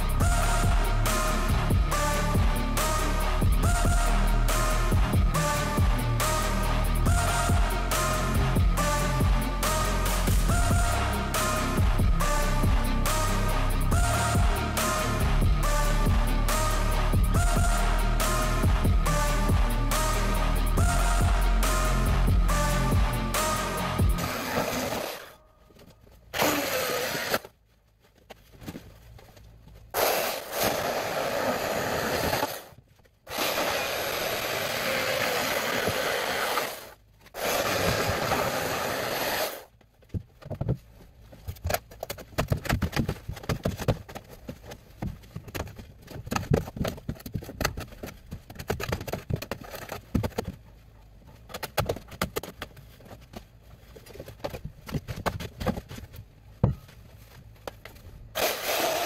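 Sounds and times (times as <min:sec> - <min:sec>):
electric saw cutting foam: 0:00.0 - 0:25.4, 0:26.3 - 0:27.5, 0:30.0 - 0:32.7, 0:33.3 - 0:39.7, 0:58.4 - 0:59.0
foam scraping and tearing: 0:23.4 - 0:27.7, 0:28.3 - 0:39.8, 0:57.0 - 0:59.0.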